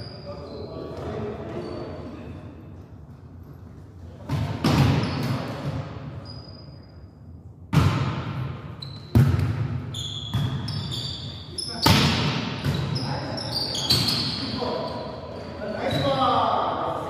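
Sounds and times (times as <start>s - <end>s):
sneakers squeaking on court: 4.2s - 7.1s, 8.7s - 15.2s, 15.8s - 16.3s.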